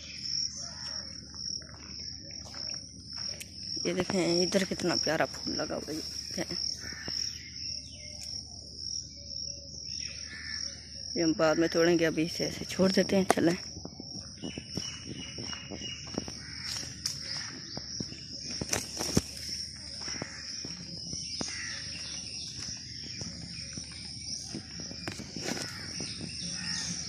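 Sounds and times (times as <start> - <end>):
footsteps on dirt path: 0.0 - 8.6, 12.6 - 27.0
bird calls: 0.0 - 12.6, 14.0 - 27.0
crickets chirring: 0.0 - 27.0.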